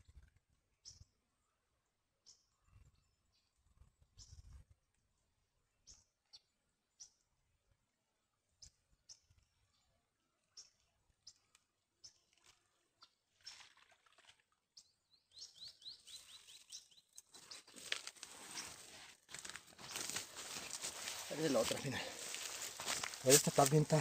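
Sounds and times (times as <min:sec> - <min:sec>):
bird chirps: 0:14.8 - 0:17.8
net rustling through dry weeds: 0:17.3 - 0:24.0.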